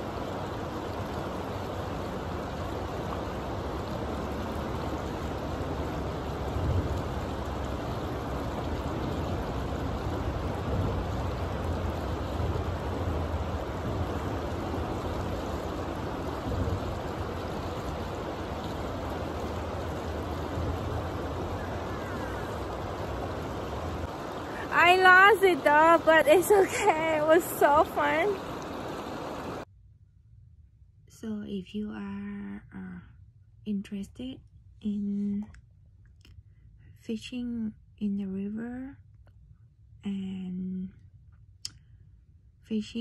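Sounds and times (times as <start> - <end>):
river rushing over rocks: 0.0 - 29.6.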